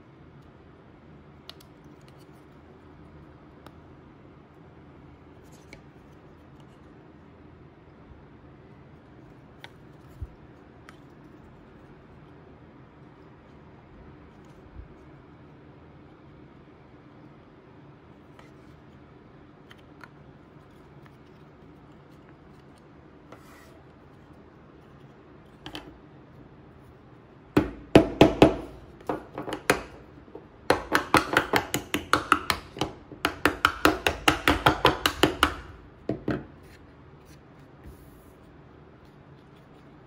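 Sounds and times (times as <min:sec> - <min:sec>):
rubber mallet knocking wood: 0:27.6 - 0:36.5.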